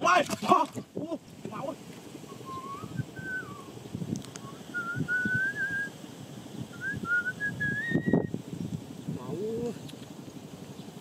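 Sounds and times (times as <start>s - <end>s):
person whistling a tune: 2.4s - 3.6s, 4.5s - 5.9s, 6.8s - 8.3s.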